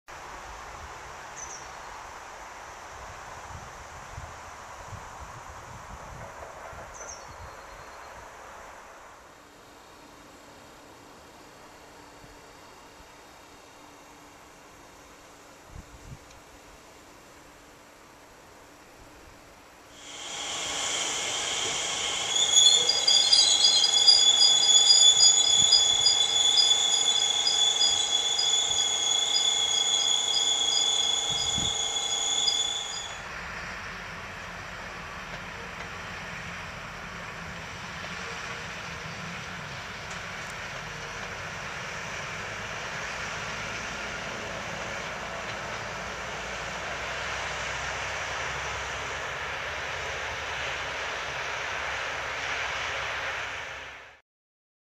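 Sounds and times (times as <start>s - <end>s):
train brakes squealing: 19.9s - 54.2s
pulsing tone: 20.0s - 33.2s
steady even noise: 20.0s - 33.2s.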